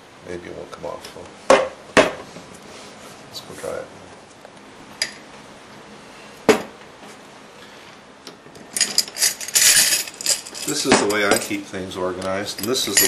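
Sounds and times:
small metal tools clinking: 8.7s - 11.7s, 12.4s - 13.0s.

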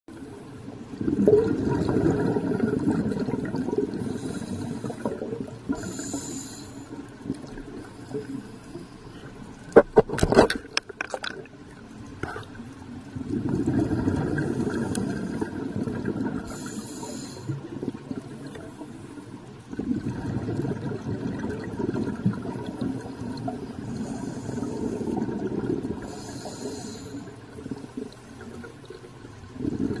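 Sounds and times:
gurgling exhaled bubbles: 0.8s - 8.5s, 9.7s - 30.0s
regulator inhale hisses: 4.0s - 5.1s, 5.7s - 7.1s, 16.4s - 17.6s, 23.7s - 25.2s, 26.0s - 27.4s.

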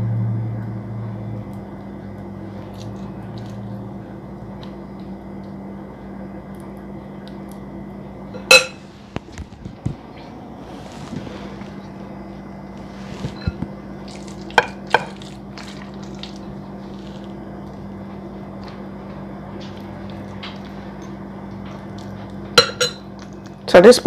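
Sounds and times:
steady low hum: 0.0s - 24.0s
metal spoon clinking on glass bowl: 22.6s - 23.0s.

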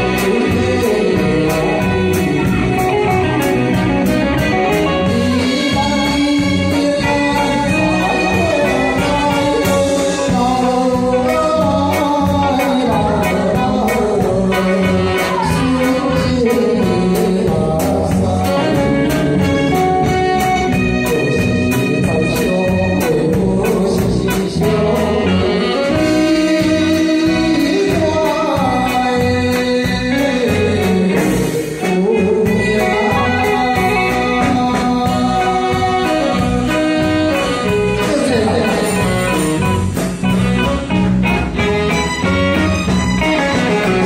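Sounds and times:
man singing into a microphone: 0.0s - 40.4s
live band with keyboard and drums: 0.0s - 44.0s.

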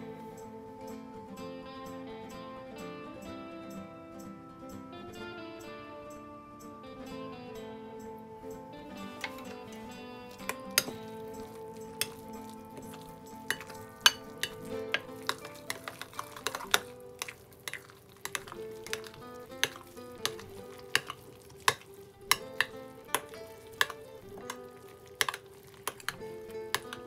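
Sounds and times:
quiet background music: 0.0s - 27.0s
spoon clinking against glass: 8.9s - 27.0s
spoon stirring in glass bowl: 9.1s - 27.0s.

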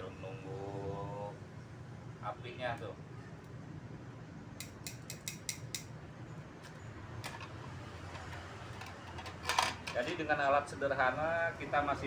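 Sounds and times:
metal tongs clicking: 4.6s - 5.9s.

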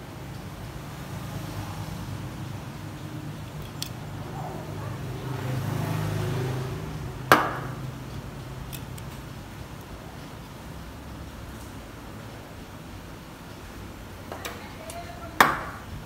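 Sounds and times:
light ticks of phone parts: 3.4s - 4.0s, 8.0s - 10.4s
sharp knock: 7.3s - 7.8s.

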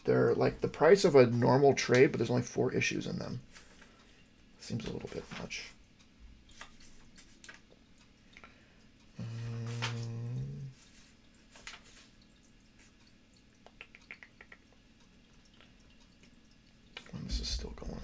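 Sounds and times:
man humming: 9.2s - 10.8s.

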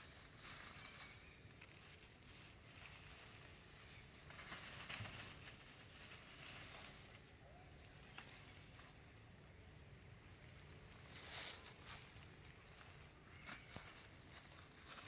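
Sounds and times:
soft rustles: 0.0s - 9.0s, 10.5s - 15.0s.

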